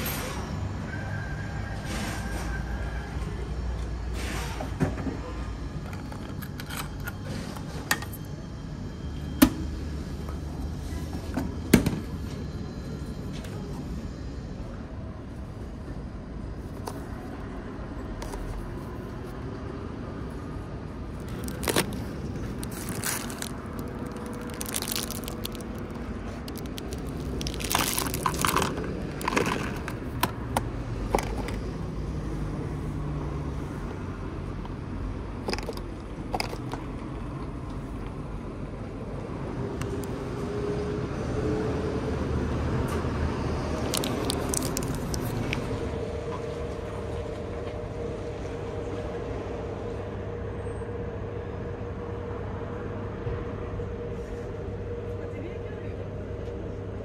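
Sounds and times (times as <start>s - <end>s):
cardboard box crackling: 21.2s - 30.0s, 43.8s - 45.4s.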